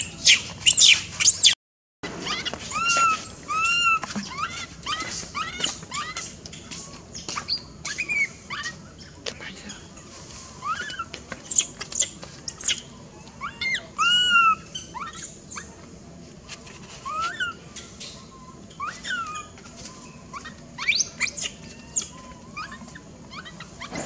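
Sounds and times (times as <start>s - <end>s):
baby monkey squealing: 0.0s - 1.6s, 2.2s - 6.3s, 7.4s - 8.8s, 10.6s - 15.8s, 17.0s - 24.0s.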